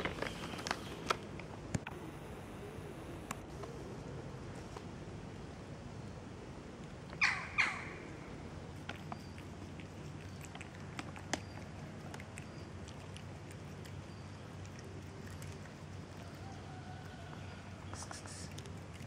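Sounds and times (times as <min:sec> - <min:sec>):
faint clicks: 0:08.8 - 0:14.0.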